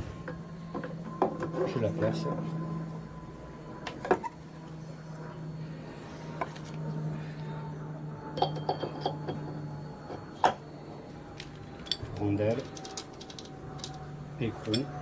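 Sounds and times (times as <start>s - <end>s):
metal parts clinking: 11.4s - 15.0s.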